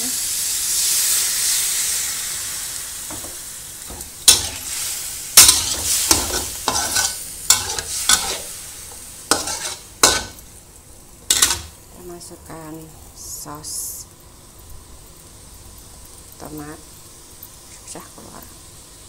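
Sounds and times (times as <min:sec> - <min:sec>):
sizzling in a hot wok: 0:00.0 - 0:19.0
metal spatula scraping wok: 0:03.9 - 0:10.4, 0:11.3 - 0:11.7.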